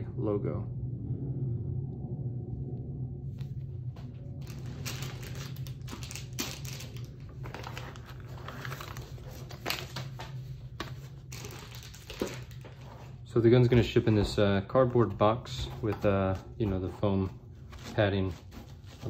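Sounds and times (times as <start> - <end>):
low hum: 0.0 - 19.0.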